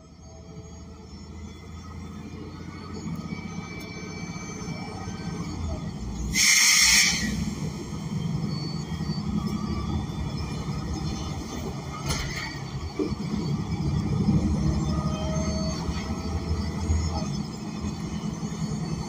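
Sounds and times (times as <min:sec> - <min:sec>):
bus engine low rumble: 0:00.0 - 0:19.0
loud hiss of air: 0:06.3 - 0:07.8.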